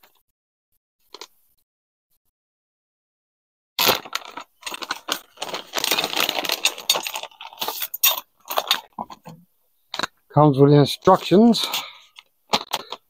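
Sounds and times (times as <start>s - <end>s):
plastic bag crinkling: 3.8s - 9.3s, 11.0s - 13.0s.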